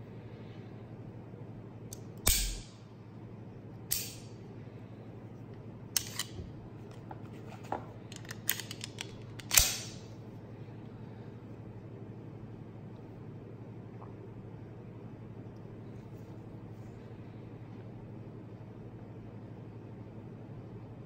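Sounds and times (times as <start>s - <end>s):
pistol action metallic clicks: 2.2s - 2.7s, 3.9s - 4.2s, 8.2s - 10.0s
pistol magazine snap: 2.2s - 2.7s, 3.9s - 4.3s, 8.5s - 10.0s.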